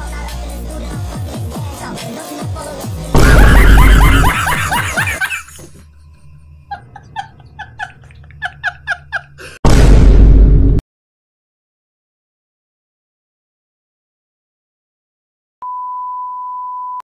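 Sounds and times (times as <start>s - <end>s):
distorted laughter: 3.2s - 9.6s.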